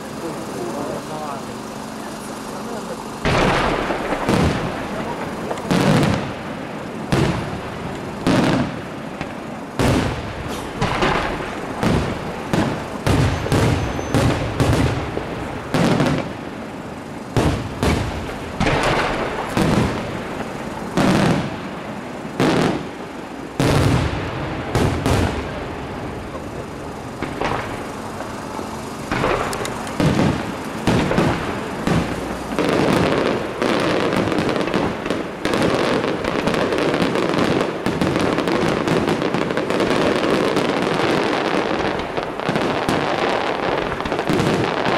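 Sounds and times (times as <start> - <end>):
firework shells bursting: 0.0 - 44.9.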